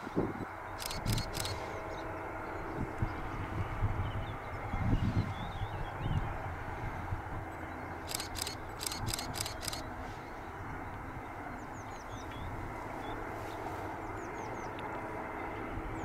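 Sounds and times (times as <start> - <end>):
low outdoor rumble: 0.0 - 16.0
small birds calling: 0.7 - 2.8, 7.8 - 14.8.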